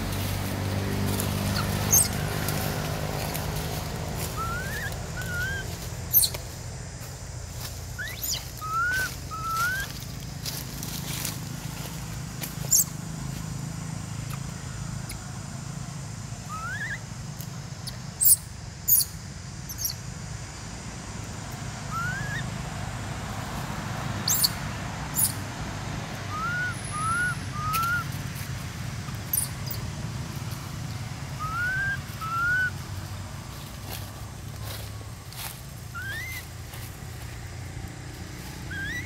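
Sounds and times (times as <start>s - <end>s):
animal whistled chirps: 1.9s - 2.1s, 8.0s - 9.9s, 16.5s - 17.0s, 21.9s - 22.4s, 24.3s - 24.5s, 26.3s - 28.1s, 31.4s - 32.7s, 36.0s - 36.4s, 38.7s - 39.0s
sharp high ticks: 17.4s - 19.1s.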